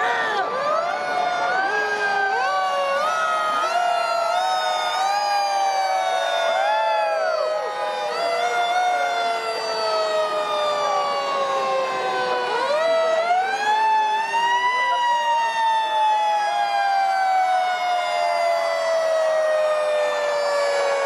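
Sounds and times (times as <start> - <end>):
fire truck siren falling: 0.0 - 21.0
second siren rising and winding down: 0.0 - 21.0.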